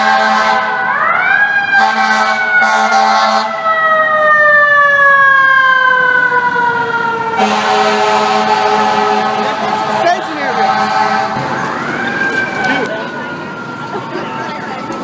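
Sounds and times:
fire engine air horn blaring: 0.0 - 5.6, 6.4 - 12.9.

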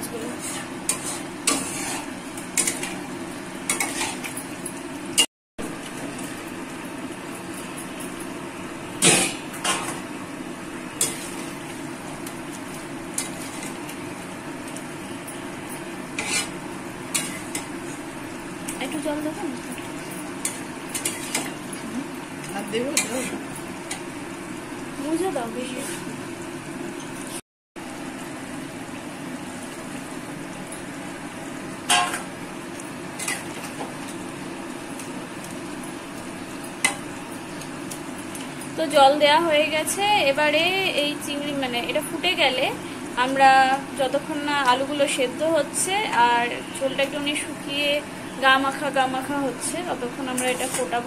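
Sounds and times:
food sizzling in gravy: 0.0 - 7.8, 8.7 - 27.2
steel spatula scraping pan: 0.2 - 3.0, 16.2 - 17.6.

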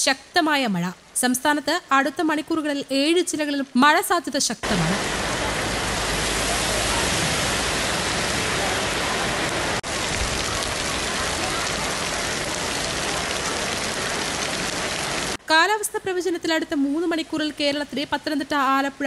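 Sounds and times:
heavy rain on road: 4.6 - 15.4.

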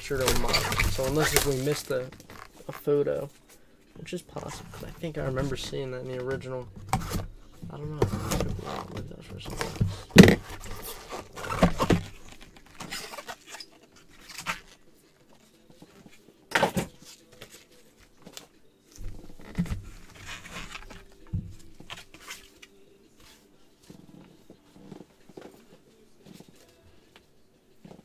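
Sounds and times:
cardboard box handled: 6.8 - 13.6.

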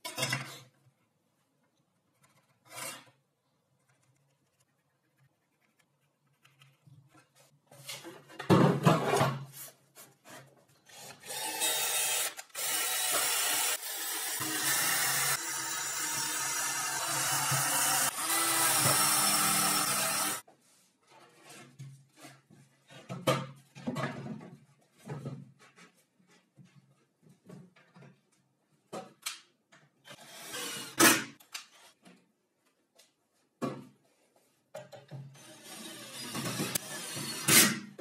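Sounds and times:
cordless drill boring into wood: 11.0 - 20.4, 30.2 - 31.0, 35.4 - 37.5.

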